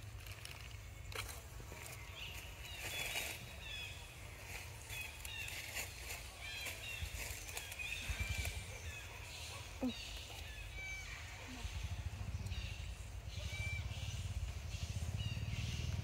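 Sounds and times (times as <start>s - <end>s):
small birds chirping: 0.0s - 16.0s
steady low rumble: 9.7s - 16.0s.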